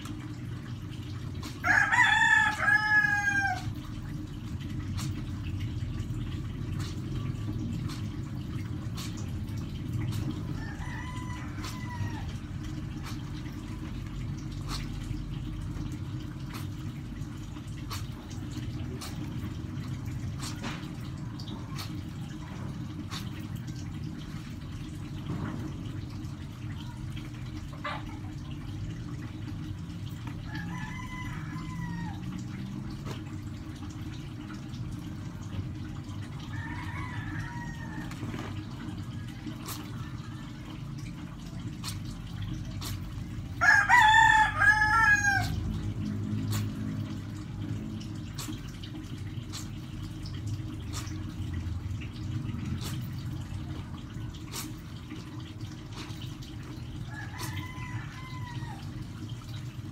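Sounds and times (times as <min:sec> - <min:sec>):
water sloshing in a basin: 0:00.0 - 0:59.9
rooster crowing: 0:01.6 - 0:03.7, 0:10.6 - 0:12.4, 0:30.5 - 0:32.2, 0:36.5 - 0:38.1, 0:43.6 - 0:45.6, 0:57.1 - 0:58.8.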